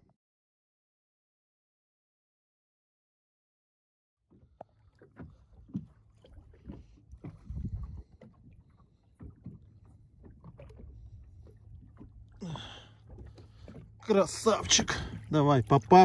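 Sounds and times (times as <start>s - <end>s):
low rumble: 6.3s - 16.0s.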